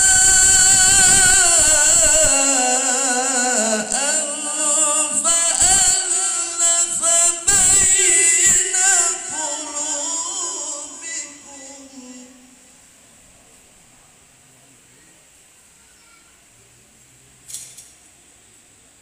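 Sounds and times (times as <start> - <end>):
man reciting melodiously over loudspeakers: 0.0 - 12.8.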